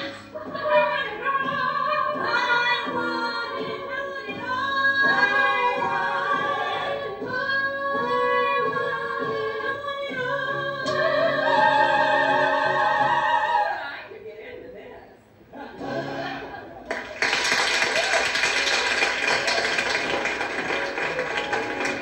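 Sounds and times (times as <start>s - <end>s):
women singing in harmony: 0.0s - 14.8s.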